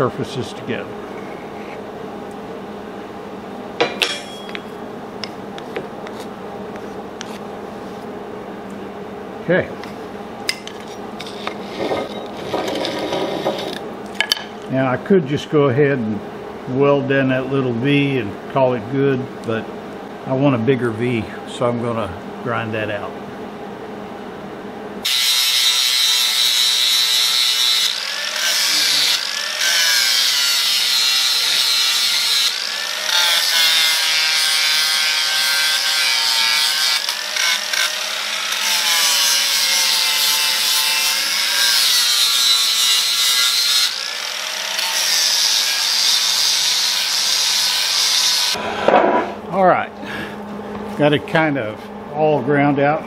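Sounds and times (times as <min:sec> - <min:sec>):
angle grinder grinding metal: 0:10.6 - 0:13.8, 0:25.0 - 0:49.3.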